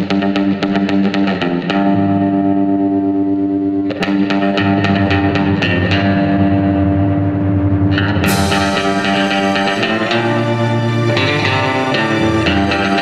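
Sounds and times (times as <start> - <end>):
guitar through effects: 0.0 - 13.0
bass line: 4.3 - 11.0
cymbal crash: 4.4 - 13.0.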